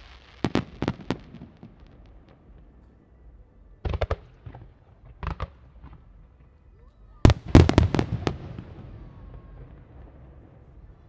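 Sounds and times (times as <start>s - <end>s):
distant firework bangs: 3.8s - 6.5s, 7.2s - 11.0s
faint firework pops: 3.8s - 6.6s.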